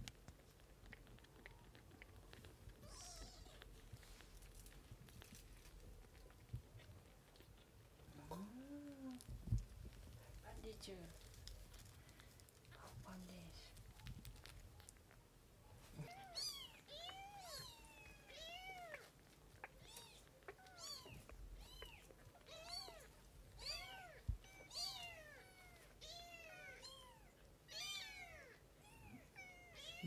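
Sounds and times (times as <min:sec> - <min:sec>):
kitten mewing: 0:15.9 - 0:30.0.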